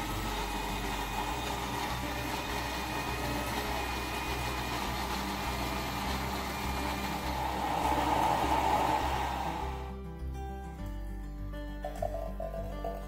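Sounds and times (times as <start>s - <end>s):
electric blender running: 0.0s - 10.0s.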